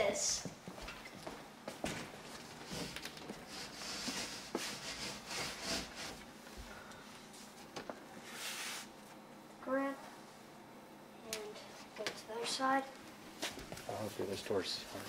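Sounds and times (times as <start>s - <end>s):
sliding door rubbing along track: 2.6s - 6.2s.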